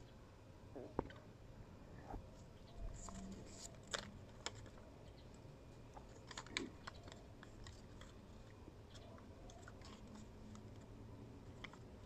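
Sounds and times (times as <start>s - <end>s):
sticker peeling clicks and crinkles: 5.9s - 12.0s.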